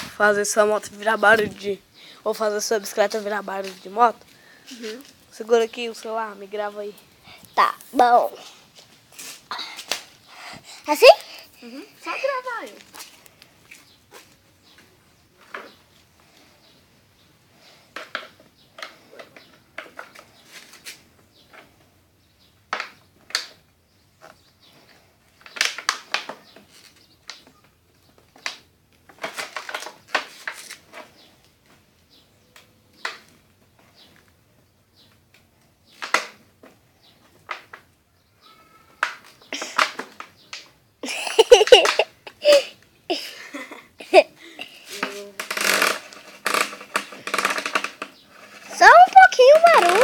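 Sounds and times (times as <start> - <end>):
rustling: 0.0 - 16.8, 24.1 - 32.3.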